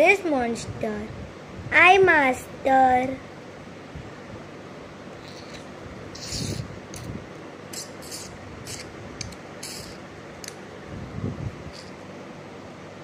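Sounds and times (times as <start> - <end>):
fingers scraping near microphone: 5.2 - 7.2, 7.8 - 8.9, 9.6 - 10.0.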